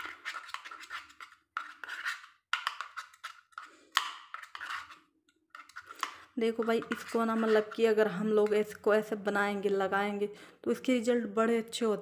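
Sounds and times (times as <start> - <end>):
plastic spoon scraping bowl: 0.0 - 8.9.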